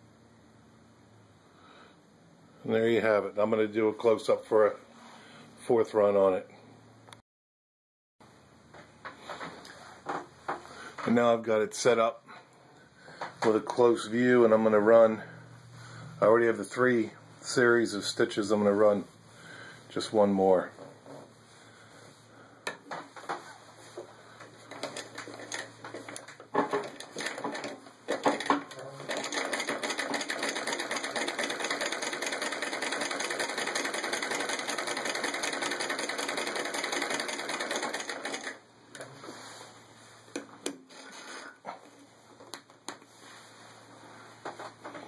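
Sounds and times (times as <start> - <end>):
treadle sewing machine clatter: 24.6 - 38.6.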